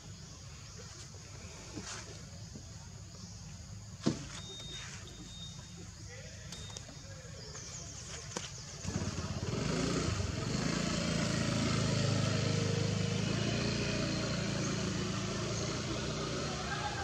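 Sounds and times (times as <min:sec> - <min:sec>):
engine humming: 0:08.4 - 0:17.0.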